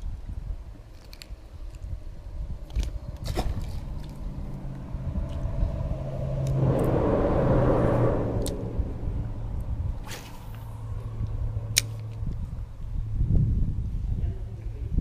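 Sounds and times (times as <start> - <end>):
engine running: 2.9 - 13.3
rushing noise: 4.4 - 11.3.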